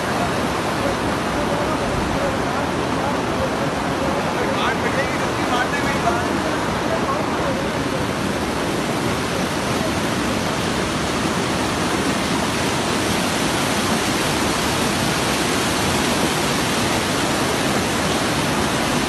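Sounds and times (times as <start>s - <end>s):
river rushing over boulders: 0.0s - 19.0s.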